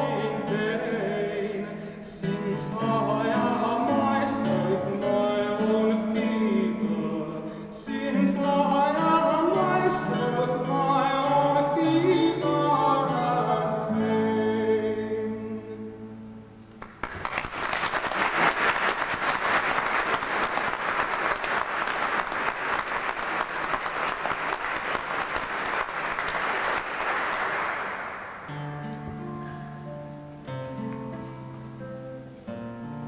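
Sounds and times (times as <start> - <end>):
man singing with classical guitar: 0.0 - 16.5
audience applause: 16.8 - 28.6.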